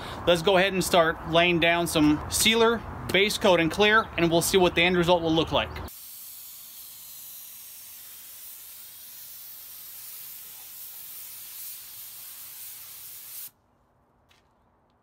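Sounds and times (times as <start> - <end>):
paint spray gun hissing: 5.9 - 13.5.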